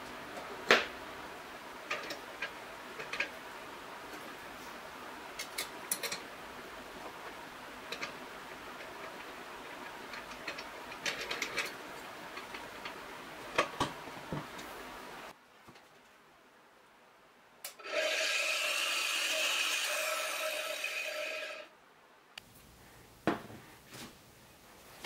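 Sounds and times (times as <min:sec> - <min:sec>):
steady hiss: 0:18.4 - 0:25.0.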